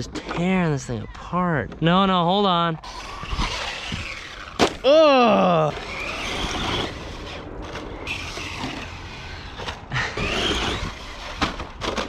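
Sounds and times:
toy car electric motor whining: 2.8s - 12.0s
steady low rumble: 5.7s - 11.8s.

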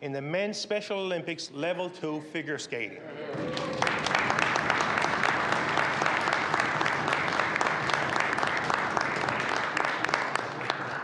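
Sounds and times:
crowd applauding: 3.3s - 11.0s.

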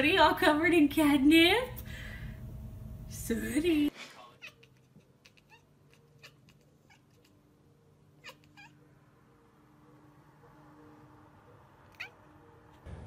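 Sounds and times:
cat chirping: 4.4s - 9.2s, 11.8s - 12.6s.

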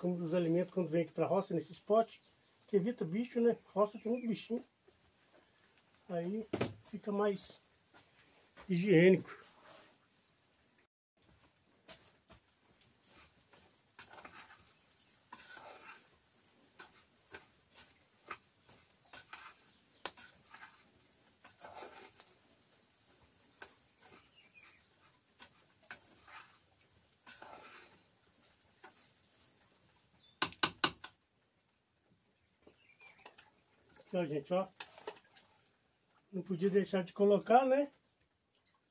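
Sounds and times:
spoon stirring rice in a pan: 11.8s - 31.2s.

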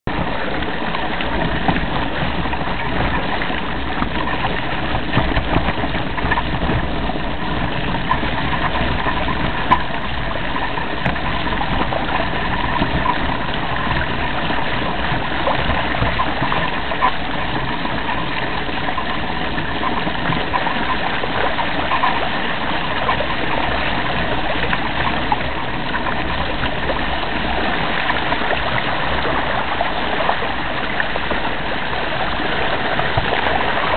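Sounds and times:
bike knocks and rattles: 1.3s - 21.0s.

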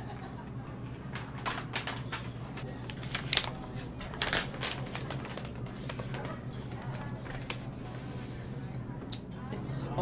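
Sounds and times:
paper envelope crinkling: 1.1s - 8.2s.

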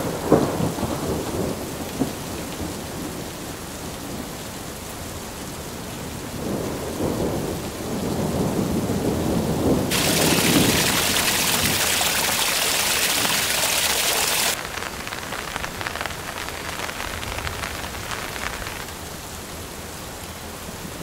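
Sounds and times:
rain falling on a creek: 0.0s - 21.0s
creek water splashing into pool: 9.9s - 19.1s.

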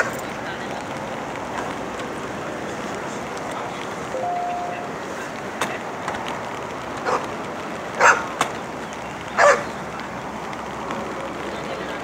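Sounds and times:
dog barking: 7.0s - 7.2s, 8.0s - 8.3s, 9.4s - 9.7s.

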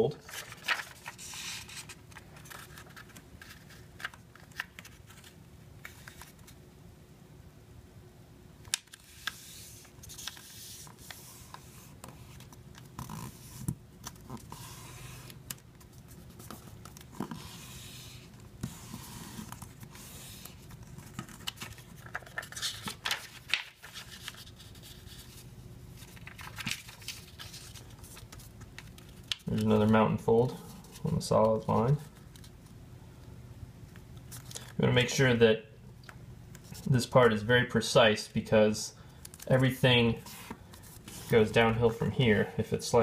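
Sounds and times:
paper rustling and scraping: 0.2s - 6.6s, 8.9s - 29.9s, 39.4s - 42.4s.

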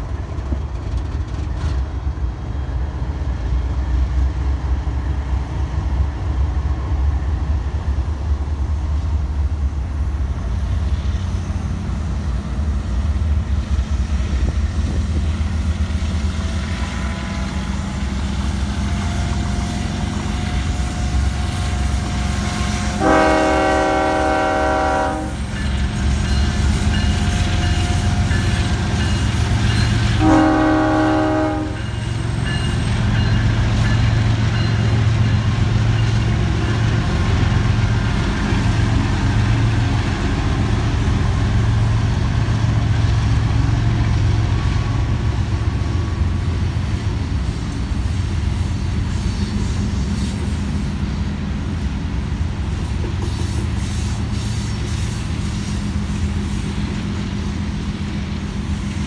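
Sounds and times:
diesel locomotive engine rumble: 0.0s - 59.0s
locomotive air horn blasts: 20.4s - 25.5s, 30.0s - 32.0s.

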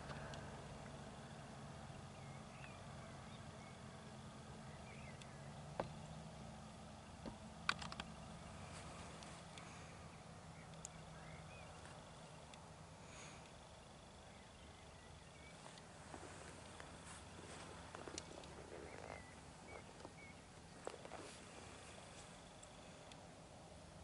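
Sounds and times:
distant bird chirps: 0.0s - 24.0s
low steady hum: 0.0s - 24.0s
sharp clicks: 7.2s - 8.2s, 10.6s - 11.0s.

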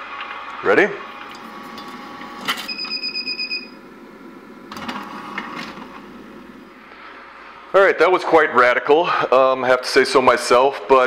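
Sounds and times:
juicer gears grinding: 1.0s - 7.1s
electronic beep: 2.6s - 3.8s.

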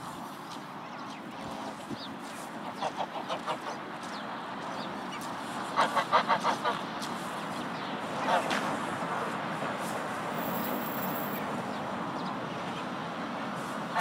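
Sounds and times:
geese calling: 2.6s - 4.2s, 5.1s - 6.8s.

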